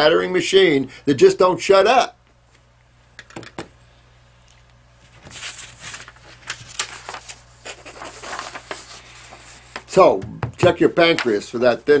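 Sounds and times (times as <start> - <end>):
paper rustling and crackling: 5.0 - 9.9.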